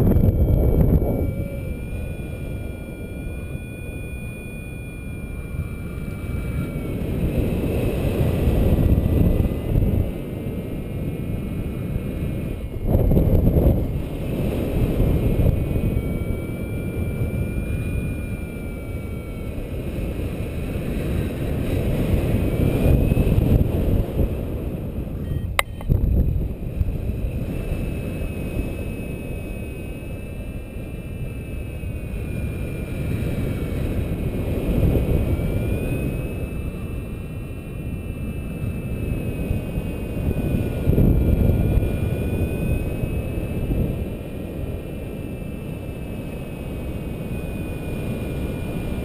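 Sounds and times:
wind buffeting microphone: 0.0 - 4.6, 5.2 - 29.0, 30.2 - 49.0
faint thin high tones: 0.2 - 6.9, 25.2 - 26.0.

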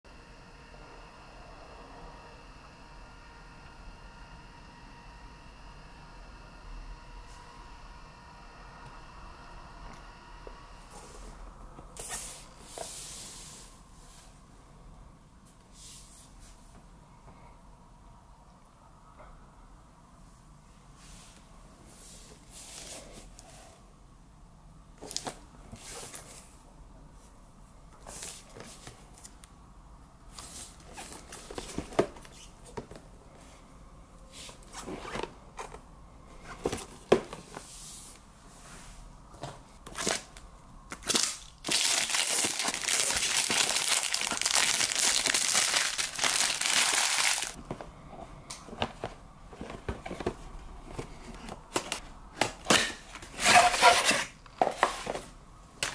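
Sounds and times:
plastic wrap crinkling and tearing: 39.9 - 47.6.

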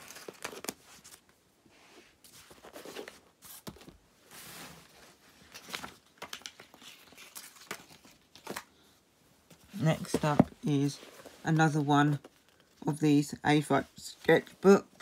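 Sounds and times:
books set down on carpet: 9.5 - 11.4.

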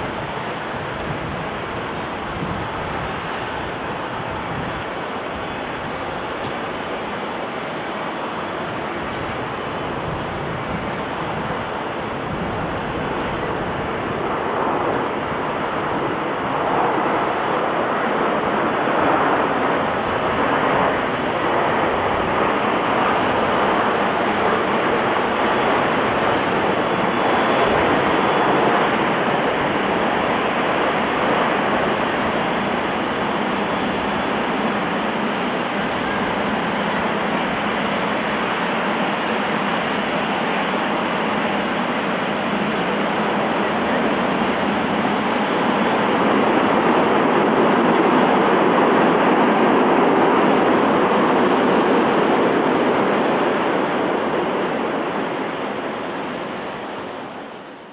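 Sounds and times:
jet engine rushing noise: 0.0 - 57.9.

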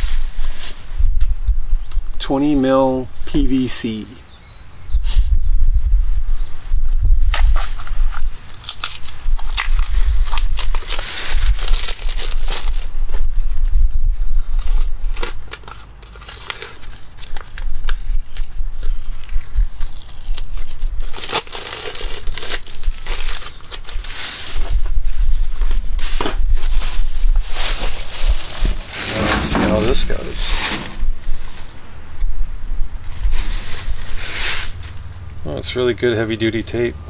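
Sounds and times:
plastic wrapping crinkling and tearing: 7.3 - 13.2, 14.2 - 31.8, 33.1 - 35.1.

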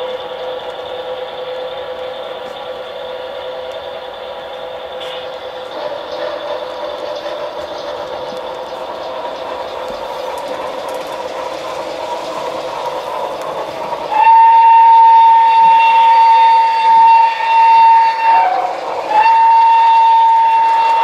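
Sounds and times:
model train running hum: 0.0 - 21.0
train horn blast: 5.0 - 5.4, 14.1 - 21.0.

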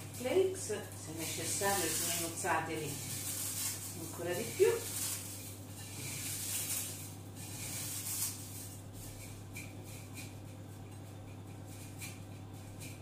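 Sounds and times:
cornflakes rustling and crackling: 0.0 - 10.4
steady low hum: 0.0 - 13.0.

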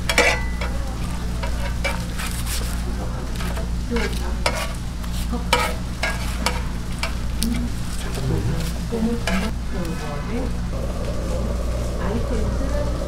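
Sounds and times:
utensils scraping and knocking: 0.0 - 0.8, 1.4 - 4.8, 5.5 - 7.2, 8.0 - 9.5
fish sizzling on a grill: 0.0 - 13.0
steady low hum: 0.0 - 13.0.

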